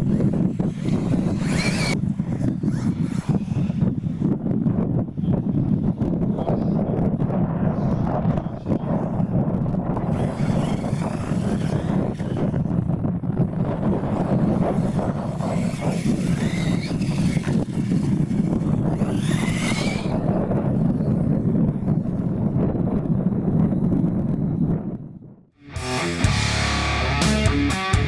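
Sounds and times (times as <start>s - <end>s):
electric motors whining: 0.0s - 4.5s, 7.8s - 22.4s
wind rumble on microphone: 0.0s - 25.5s.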